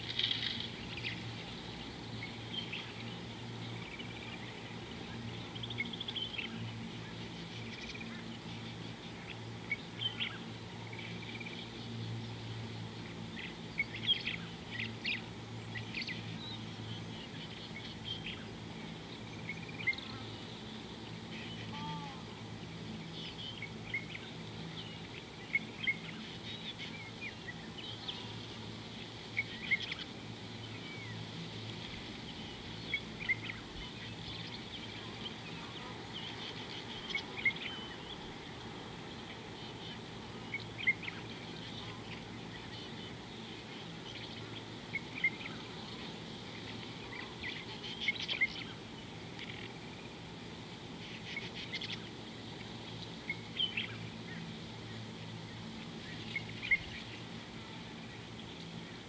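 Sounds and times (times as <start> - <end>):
faint hiss: 0.0 - 59.0
birds chirping and whistling: 32.2 - 38.3, 56.1 - 57.2.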